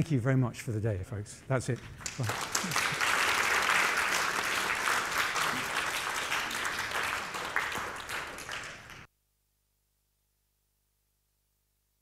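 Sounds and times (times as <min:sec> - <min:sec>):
audience applauding: 0:02.0 - 0:09.1.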